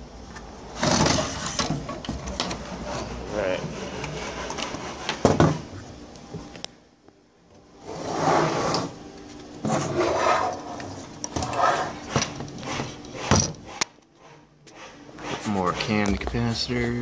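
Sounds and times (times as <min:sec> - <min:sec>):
rubbing and scraping strokes: 0:09.7 - 0:16.6.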